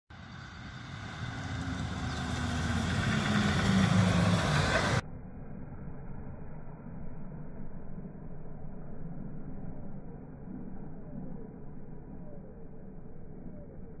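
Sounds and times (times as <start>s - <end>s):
engine running: 0.1s - 14.0s
muffled low rumble: 0.1s - 14.0s.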